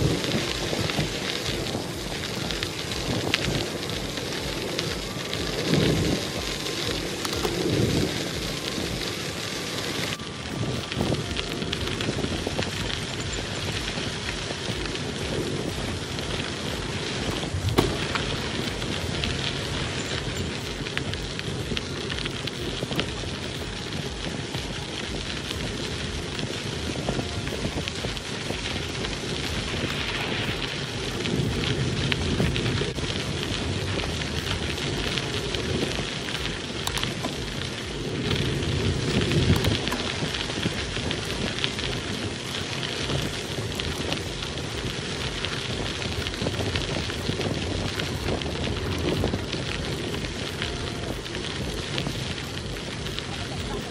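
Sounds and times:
bicycle tyres crunching over gravel: 0.0s - 53.9s.

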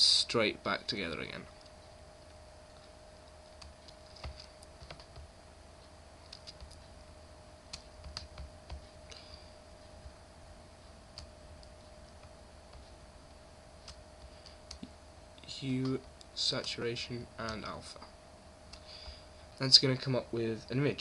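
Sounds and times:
faint electrical hum: 0.0s - 21.0s
mouse and keyboard clicking: 6.2s - 6.8s.

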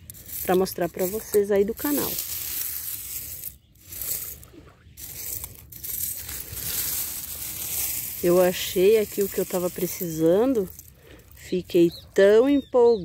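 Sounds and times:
seashells clinking and crunching: 0.0s - 12.2s.

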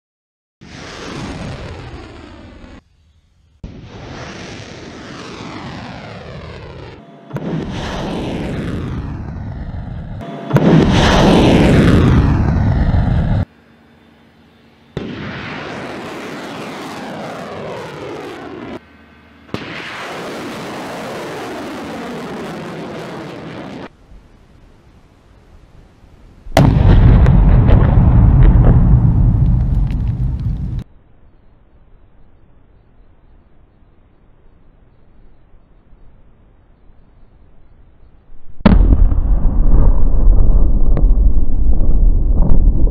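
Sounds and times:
rocket motors firing: 3.6s - 13.5s, 14.9s - 18.8s, 19.4s - 23.9s, 26.5s - 30.8s.

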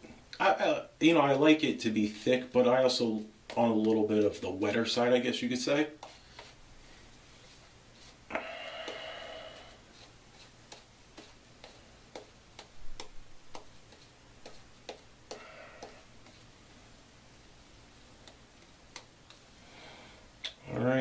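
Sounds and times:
shaving brush brushing: 9.5s - 13.1s.

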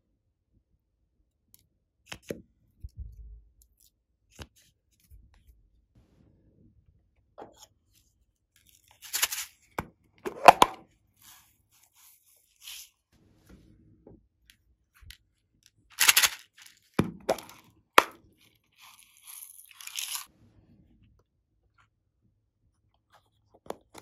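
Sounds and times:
plastic containers clicking and rattling: 16.0s - 18.2s.

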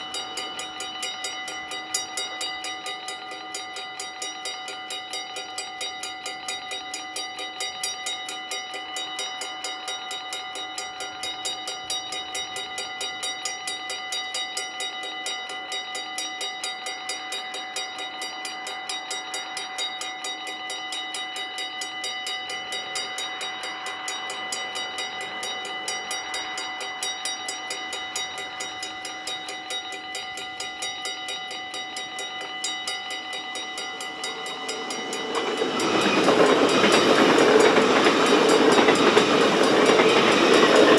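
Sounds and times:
approaching train rushing: 0.0s - 5.0s, 18.2s - 40.9s
level crossing warning bells: 0.0s - 40.9s.

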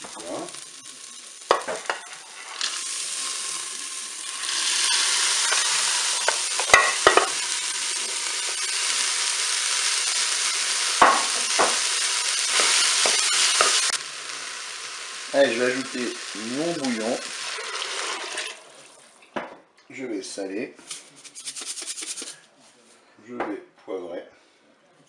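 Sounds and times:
peas sizzling in hot oil: 0.0s - 19.1s.

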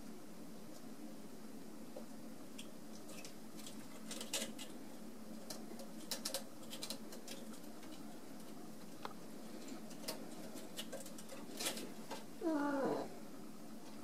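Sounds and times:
low room hum: 0.0s - 14.0s
claws and toys clicking: 2.6s - 12.3s.

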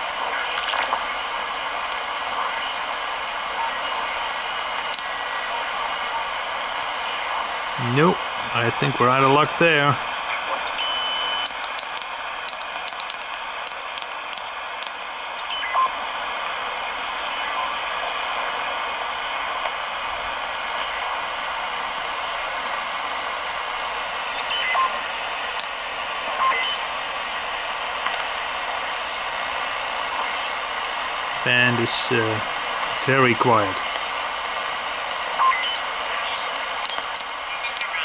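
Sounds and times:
faint radio whistles: 10.6s - 15.9s, 25.6s - 27.0s, 35.4s - 38.0s
short clicks: 11.3s - 14.6s, 36.5s - 38.0s.

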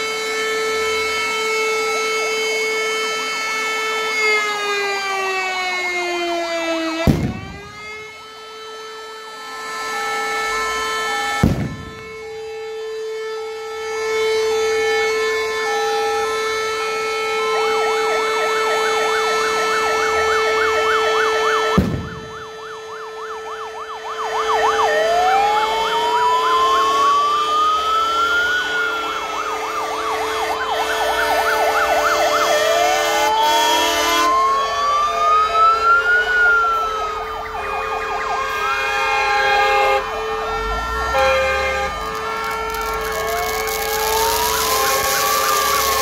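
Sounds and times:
wailing sirens: 0.0s - 46.0s
yelping sirens: 0.0s - 46.0s
sharp crack: 7.1s - 7.8s, 11.4s - 12.1s, 21.7s - 22.4s
held horn tone: 37.5s - 46.0s.

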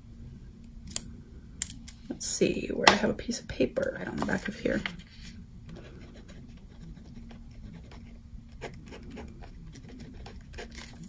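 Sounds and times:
pen scratching on paper: 6.0s - 11.0s.

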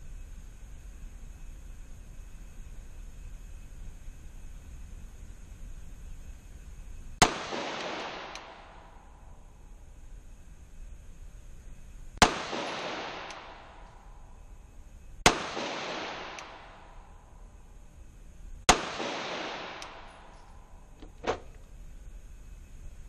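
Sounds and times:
pistol shots with echo: 7.2s - 9.2s, 12.2s - 14.1s, 15.2s - 17.1s, 18.7s - 20.7s.

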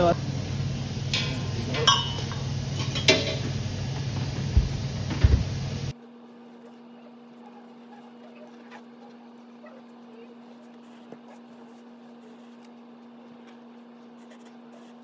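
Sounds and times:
wood fire burning: 0.0s - 6.0s.

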